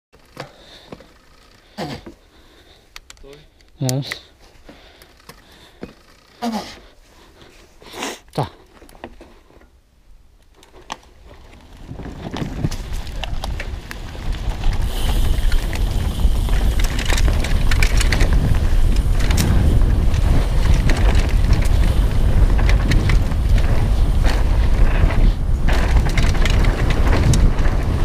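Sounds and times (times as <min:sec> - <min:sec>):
bike chain and frame rattling: 0:00.2 - 0:01.8, 0:04.8 - 0:06.4, 0:10.6 - 0:28.0
wind buffeting camera: 0:11.2 - 0:28.0.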